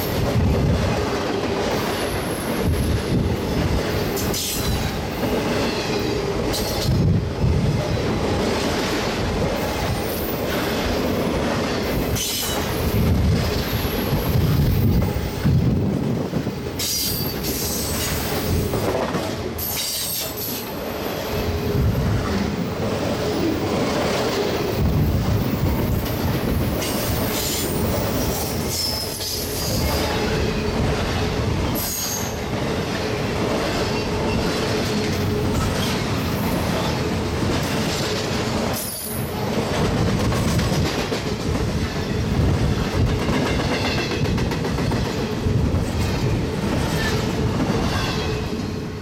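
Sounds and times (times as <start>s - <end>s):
steel wheels rolling on rail: 0.0s - 49.0s.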